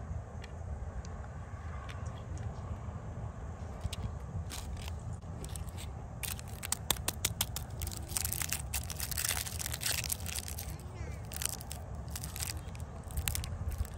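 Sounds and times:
low steady rumble: 0.0s - 13.9s
cellophane wrapper crinkling: 4.5s - 13.9s.

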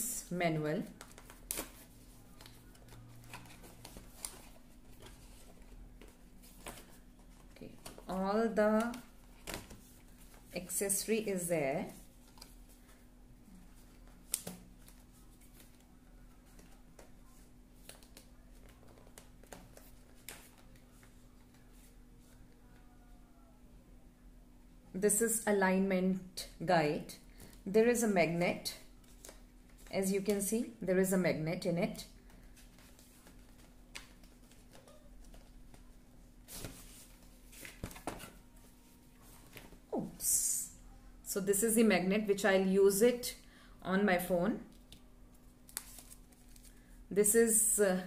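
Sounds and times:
faint steady hum: 0.0s - 48.0s
paper packing rustling: 45.6s - 46.8s.

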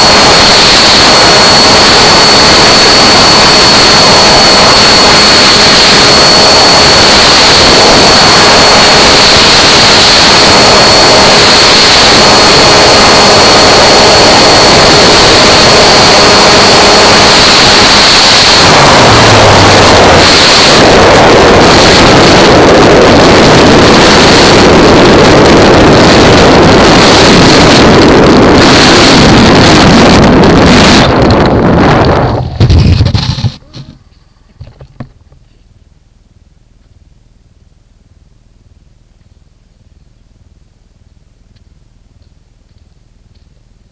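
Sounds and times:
model airplane engine whine: 0.0s - 33.6s
wind rush on microphone: 0.0s - 35.3s.

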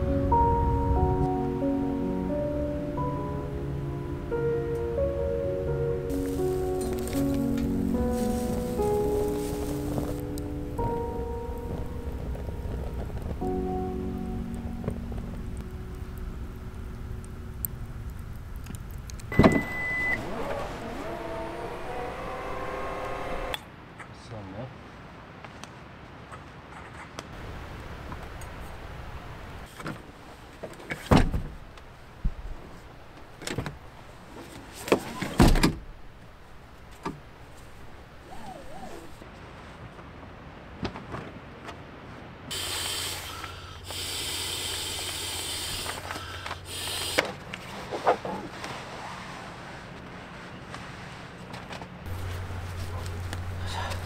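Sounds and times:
steady hiss over low hum: 0.0s - 54.0s
short high beep: 19.3s - 20.2s
electric motor whining: 19.6s - 23.6s.

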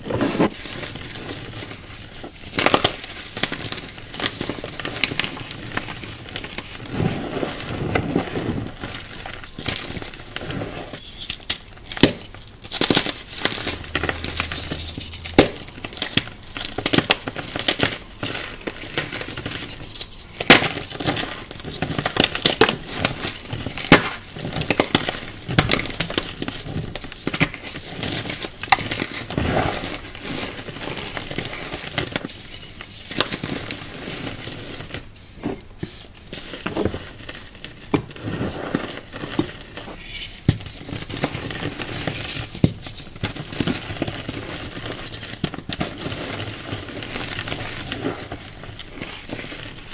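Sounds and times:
hands crushing dry powdery lumps: 0.0s - 49.9s.

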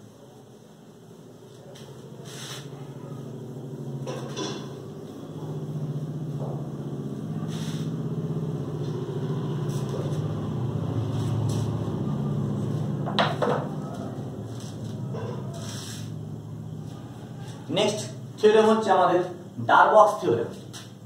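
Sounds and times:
low motor hum: 1.9s - 18.4s.

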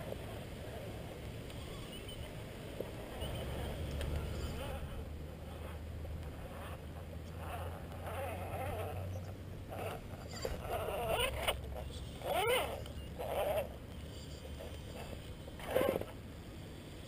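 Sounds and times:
rc car motor whining: 6.5s - 16.2s.

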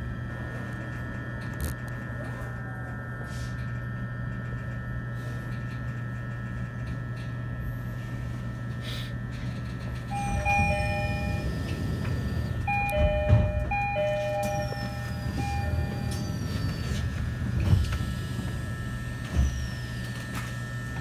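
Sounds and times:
train running hum: 0.0s - 21.0s
level-crossing warning bell: 7.4s - 21.0s.

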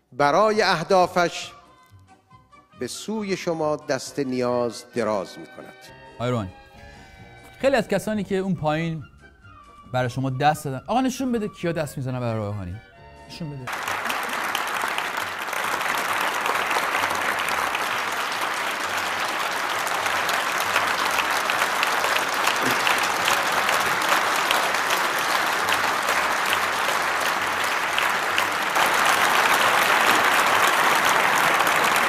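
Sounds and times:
audience applauding: 13.7s - 32.0s.

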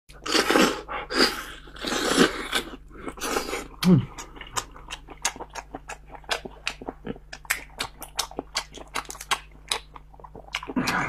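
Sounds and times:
wet mouth smacking and chewing: 2.6s - 11.0s.

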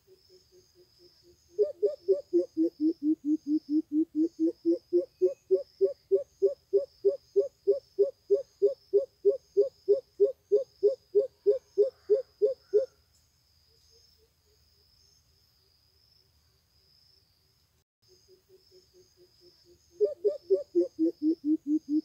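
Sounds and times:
bird deep hooting call: 1.6s - 13.0s, 20.0s - 22.0s.

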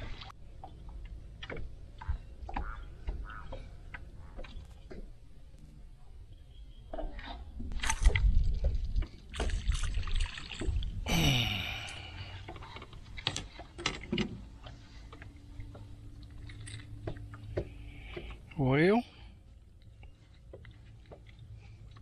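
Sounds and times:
water splashing: 7.8s - 13.8s
faint steady hum: 9.5s - 22.0s.

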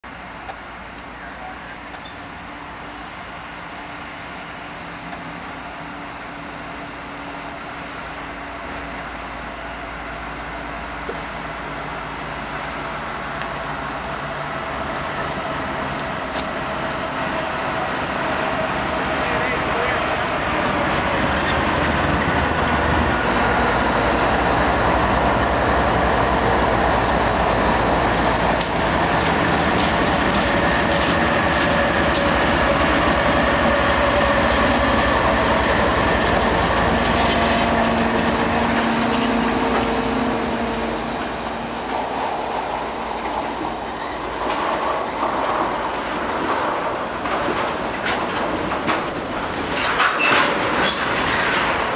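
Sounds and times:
diesel locomotive engine drone: 0.0s - 51.9s
wheel-on-rail clatter: 44.4s - 51.9s
squealing wheels: 50.0s - 51.8s.

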